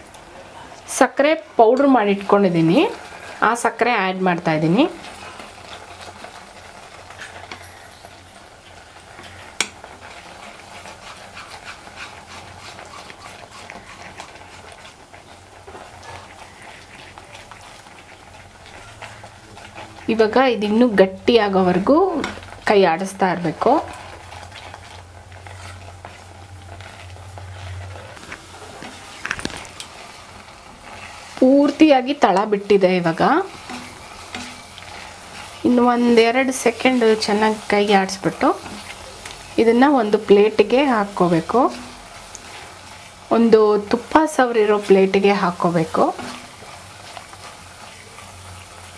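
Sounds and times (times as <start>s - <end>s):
spatula scraping a pan: 9.0s - 20.4s, 23.4s - 48.9s.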